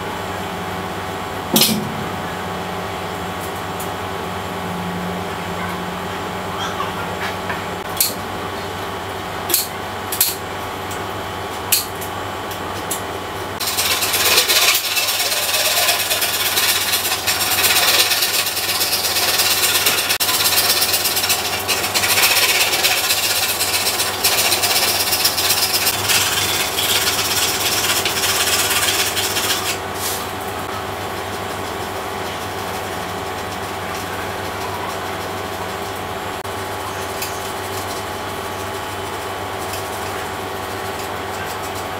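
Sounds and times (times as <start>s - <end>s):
steady hum: 0.0s - 41.1s
hand file rasping: 13.6s - 29.8s.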